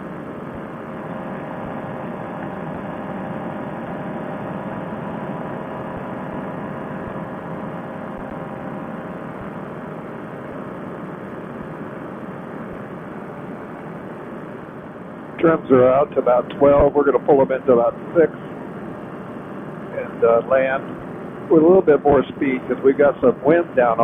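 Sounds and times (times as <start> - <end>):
paramotor engine droning: 0.0 - 24.0.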